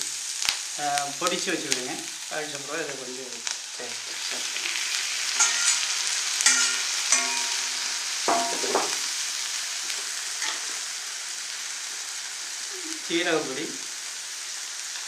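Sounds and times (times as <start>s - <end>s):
onions sizzling in oil: 0.0s - 15.0s
ladle scraping pan: 5.4s - 9.0s
steel ladle clinking on pan: 5.4s - 9.1s, 10.4s - 10.7s.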